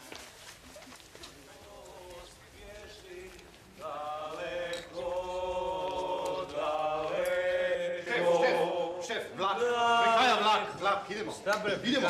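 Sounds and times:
group singing chant-like notes: 1.6 - 10.8.

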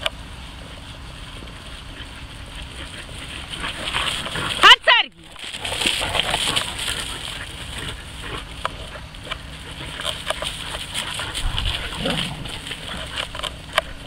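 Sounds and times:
dog paws crunching stubble: 0.0 - 14.0
wind on microphone: 11.3 - 12.6.

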